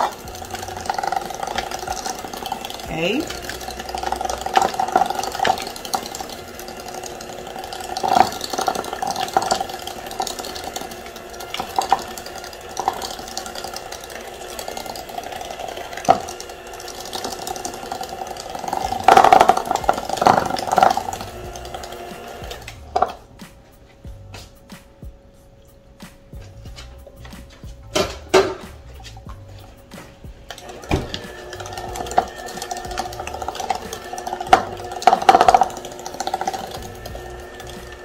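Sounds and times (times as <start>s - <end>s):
beaters knocking against bowl: 0.0s - 13.8s, 17.0s - 23.2s, 27.9s - 29.4s, 30.6s - 38.0s
electric hand mixer running: 0.0s - 23.2s, 30.5s - 38.0s.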